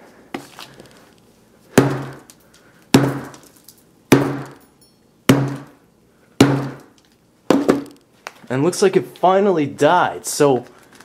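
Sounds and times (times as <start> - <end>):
hammer striking glass screen: 1.8 - 2.3, 2.9 - 5.8, 6.4 - 7.9.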